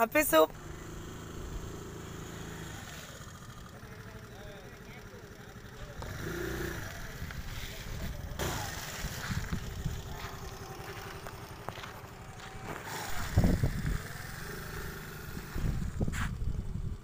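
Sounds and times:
scooter engine idling: 0.0 - 17.0.

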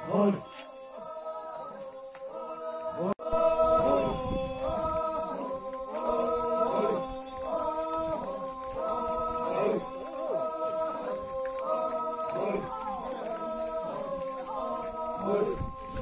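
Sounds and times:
voices singing in chorus: 0.0 - 16.0.

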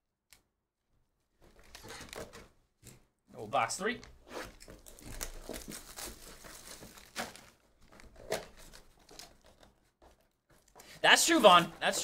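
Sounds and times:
packaging crinkling and rustling: 4.5 - 11.6.

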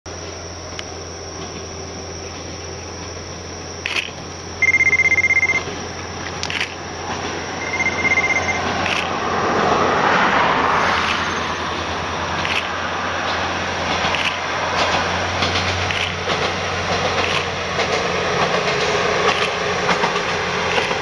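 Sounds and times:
diesel railcar running: 0.1 - 21.0
sharp clicks: 3.8 - 5.7, 6.3 - 6.8, 7.9 - 9.2, 12.4 - 12.7, 14.0 - 14.4, 15.5 - 16.5, 17.1 - 17.9, 19.3 - 21.0.

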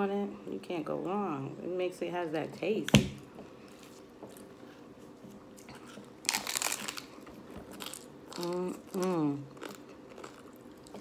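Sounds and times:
chewing crunches: 5.2 - 11.0
crunching taco bite: 5.5 - 11.0.

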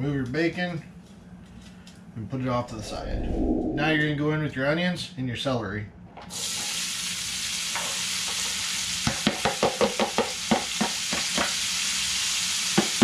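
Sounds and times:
vegetables sizzling in hot fat: 6.3 - 13.0.

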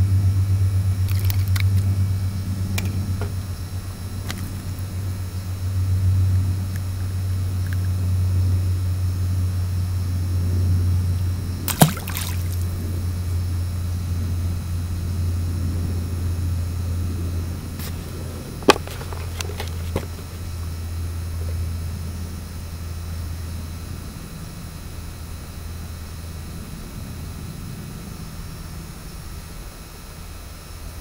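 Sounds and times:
low drone: 0.0 - 29.7
water splashing: 1.1 - 1.9, 11.7 - 12.8.

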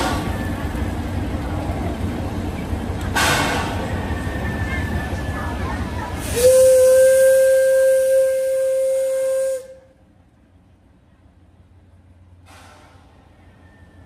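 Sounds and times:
rush of steam: 0.0 - 9.9, 12.4 - 13.3
steam locomotive whistle: 6.2 - 10.0
short steam hiss: 12.4 - 13.1.

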